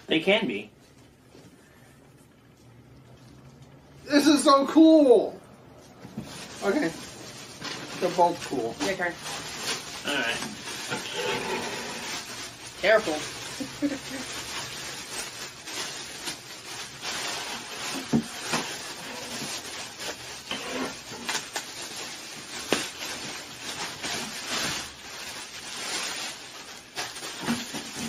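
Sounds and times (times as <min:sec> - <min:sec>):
plastic bag crinkling: 0:06.2 - 0:28.0.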